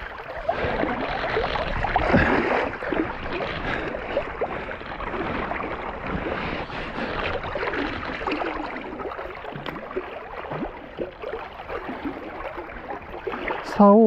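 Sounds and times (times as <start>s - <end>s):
river rushing and gurgling: 0.0s - 14.0s.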